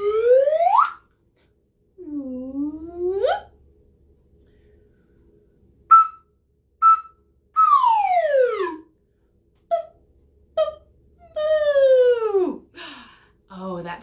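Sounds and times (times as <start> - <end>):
slide whistle: 0.0 - 1.1, 5.9 - 8.9.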